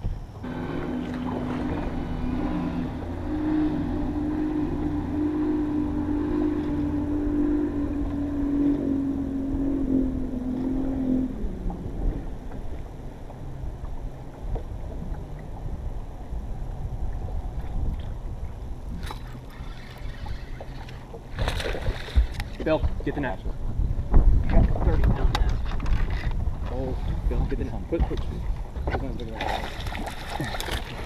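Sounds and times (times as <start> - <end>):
wind and water rumble: 0.0 - 31.0
electric motor humming: 19.1 - 21.2.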